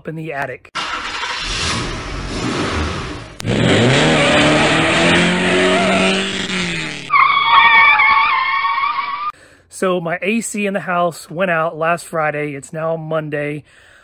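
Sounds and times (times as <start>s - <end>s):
car engine revving: 0.8s - 7.7s
high wavering squeal: 7.1s - 9.3s.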